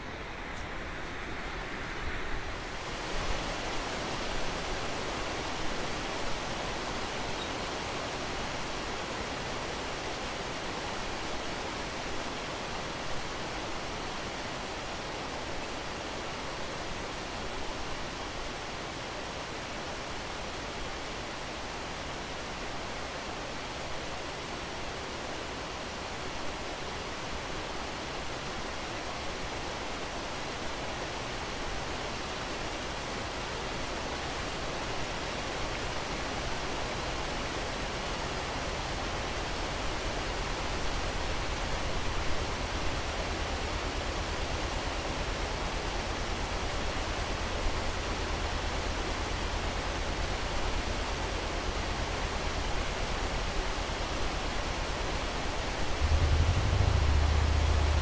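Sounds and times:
water rushing through lock: 0:02.6 - 0:58.0
boat engine rumbling: 0:55.8 - 0:58.0.

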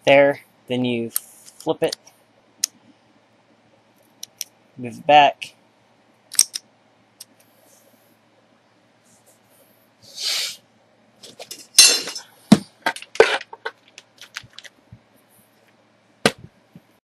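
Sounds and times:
metal parts clinking on table: 0:11.3 - 0:12.3.

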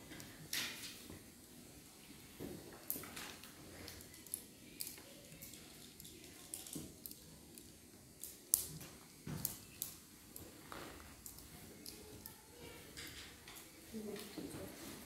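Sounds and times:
abacus beads clicking: 0:11.2 - 0:12.4.

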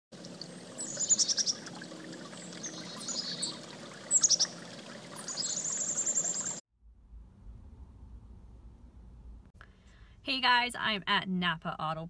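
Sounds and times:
running water: 0:00.1 - 0:06.6
songbirds chirping: 0:00.2 - 0:06.6.

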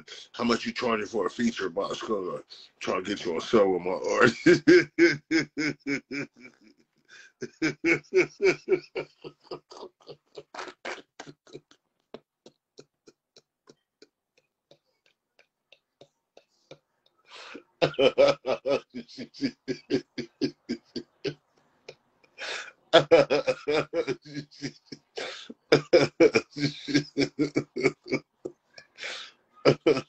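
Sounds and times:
man laughing hard: 0:03.2 - 0:11.7, 0:17.4 - 0:21.4, 0:22.4 - 0:30.0.

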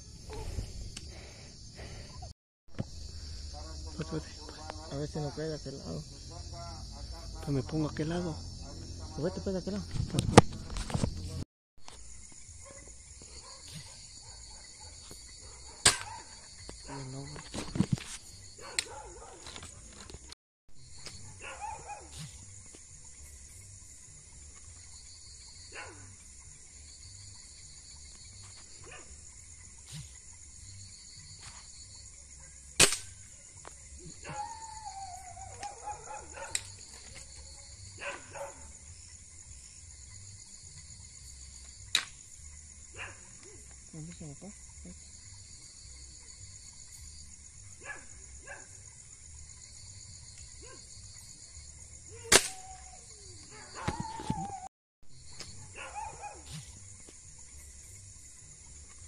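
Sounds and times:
night insects shrilling: 0:00.0 - 0:59.0
distant dog yelping: 0:21.3 - 0:22.2, 0:34.1 - 0:36.6, 0:52.1 - 0:54.7, 0:55.7 - 0:56.5
sharp loud crack: 0:32.8 - 0:33.2, 0:52.3 - 0:52.6.

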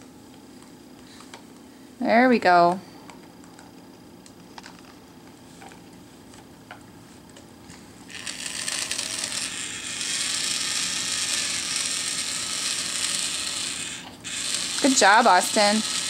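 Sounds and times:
toy power drill running: 0:08.1 - 0:16.0.

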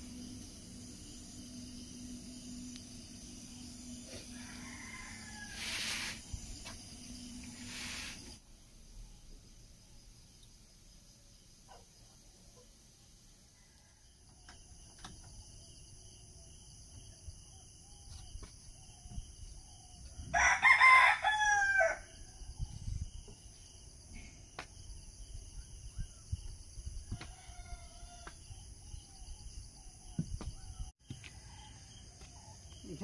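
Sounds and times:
high insect chorus: 0:00.0 - 0:33.0
rooster crowing: 0:04.0 - 0:06.2, 0:20.3 - 0:22.2, 0:27.1 - 0:28.4.

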